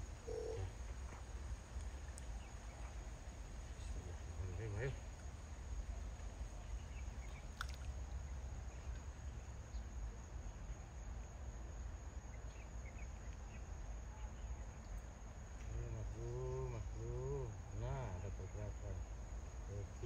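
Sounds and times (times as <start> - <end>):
high-pitched insect drone: 0.0 - 0.7.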